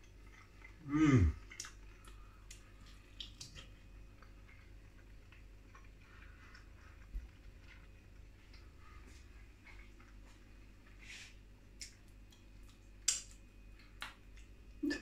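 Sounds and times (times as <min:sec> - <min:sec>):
person humming: 0:00.8 - 0:01.4
chewing clicks and smacks: 0:01.4 - 0:10.2, 0:11.7 - 0:14.6.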